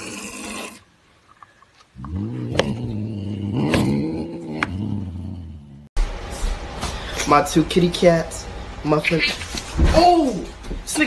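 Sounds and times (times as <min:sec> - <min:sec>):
cat growling low: 0:02.0 - 0:05.9.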